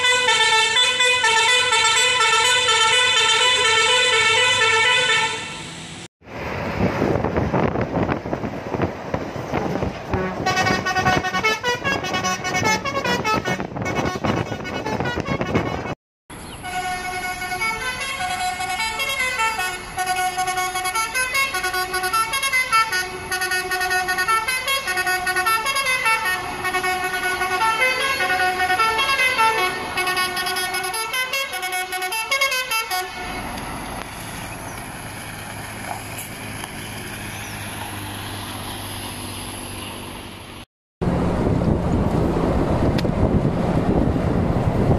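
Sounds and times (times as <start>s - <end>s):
musical air horn playing a tune: 0.0s - 5.8s, 10.1s - 16.0s, 16.6s - 33.3s
engine rumble: 0.0s - 44.9s
wind noise: 6.4s - 16.0s, 41.0s - 44.9s.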